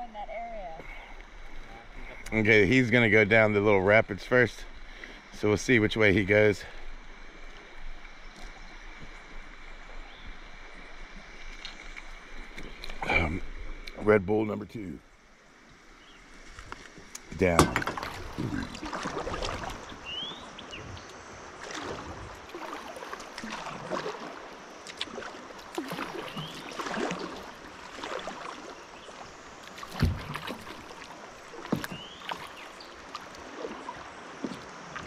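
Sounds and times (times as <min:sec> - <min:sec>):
moving river water: 0:00.0 - 0:35.0
paddle strokes splashing water: 0:06.6 - 0:14.0, 0:16.3 - 0:35.0.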